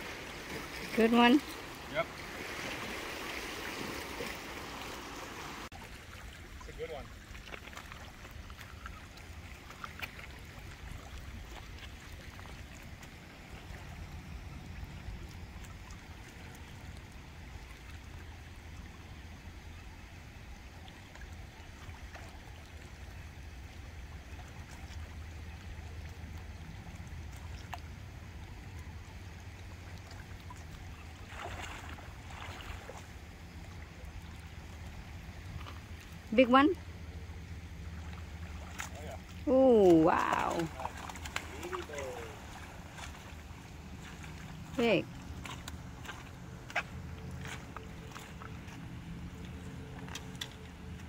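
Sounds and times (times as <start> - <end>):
water splash: 0.0 - 18.2, 29.5 - 36.7, 37.8 - 51.0
gentle water on rocky shore: 0.0 - 51.0.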